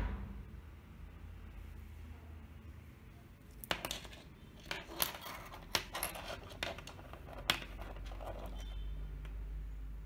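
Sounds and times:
small hard parts clicking: 3.6 - 9.4.

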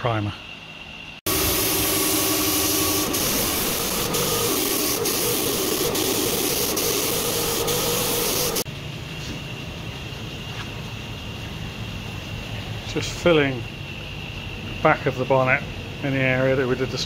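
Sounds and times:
spray gun hissing: 1.3 - 8.7.

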